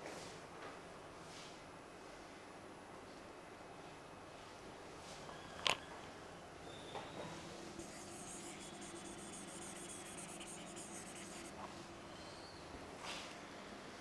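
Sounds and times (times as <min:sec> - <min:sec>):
marker scribbling on whiteboard: 0:07.8 - 0:11.6.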